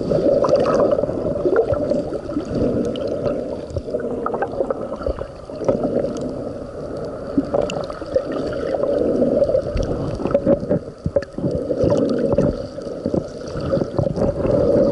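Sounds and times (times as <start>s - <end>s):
underwater seawater sloshing: 0.0s - 14.9s.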